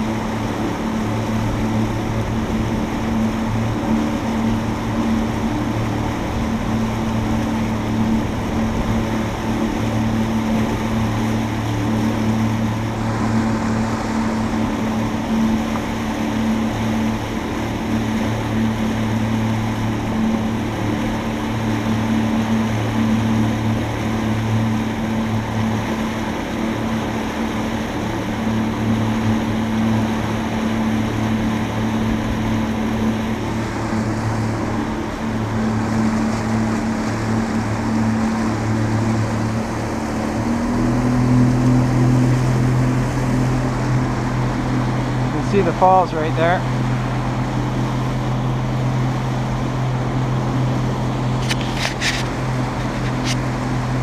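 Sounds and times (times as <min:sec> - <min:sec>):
boat motor humming: 0:00.0 - 0:54.0
rushing water: 0:00.0 - 0:54.0.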